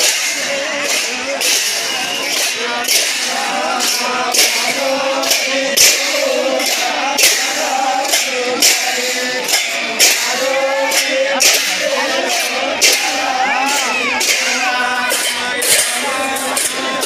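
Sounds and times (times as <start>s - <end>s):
brass hand cymbals clashing: 0.0s - 17.0s
men singing: 0.0s - 17.0s.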